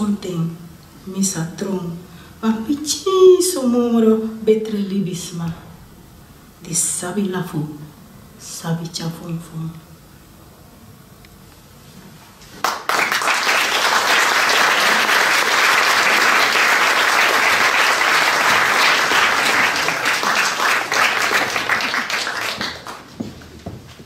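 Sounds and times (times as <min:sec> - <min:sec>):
audience applauding: 0:12.6 - 0:23.3.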